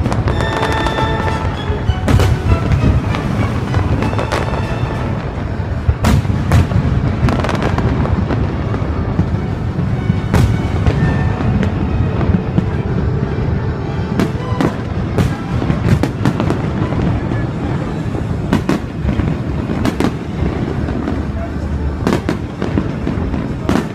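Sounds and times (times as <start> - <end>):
firework shells bursting: 0.0 - 12.8
distant booms rumbling: 0.0 - 23.9.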